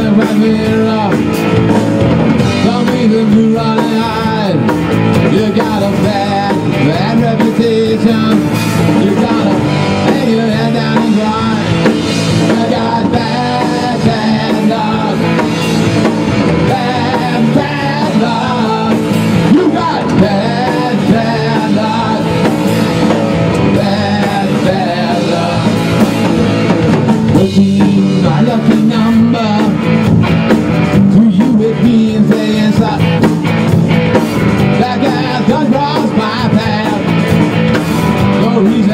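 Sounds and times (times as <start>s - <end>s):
man singing into microphone: 0.0s - 1.4s, 2.5s - 15.6s, 16.5s - 22.5s, 23.6s - 26.2s, 27.3s - 30.0s, 31.0s - 33.2s, 34.7s - 37.1s, 38.3s - 38.9s
drum kit: 0.0s - 38.9s
electric guitars: 0.0s - 38.9s.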